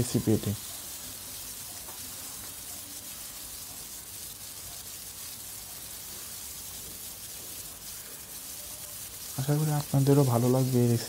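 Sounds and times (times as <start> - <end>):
prawns sizzling in oil: 0.0 - 11.0.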